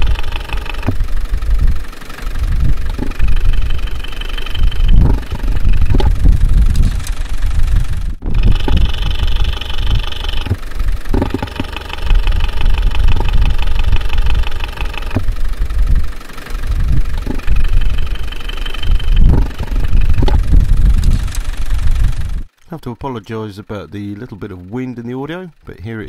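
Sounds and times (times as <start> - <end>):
valve gear tapping: 0.0 - 1.8, 2.5 - 16.1, 16.7 - 22.8
diesel engine running: 0.0 - 26.0
wind rumble on microphone: 0.9 - 1.8, 2.4 - 3.8, 4.6 - 11.4, 15.1 - 16.1, 16.7 - 18.1, 18.9 - 22.5.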